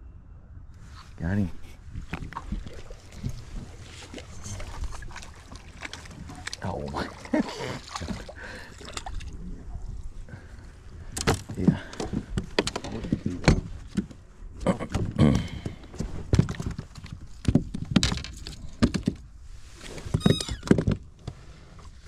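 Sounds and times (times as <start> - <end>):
knocks and thumps in boat: 2.0 - 9.3, 11.1 - 14.2, 14.8 - 19.3.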